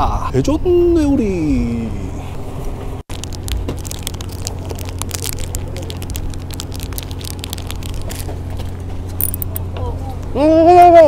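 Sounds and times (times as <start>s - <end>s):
crackles and clicks: 3.1s - 9.6s
boat engine humming: 3.1s - 10.3s.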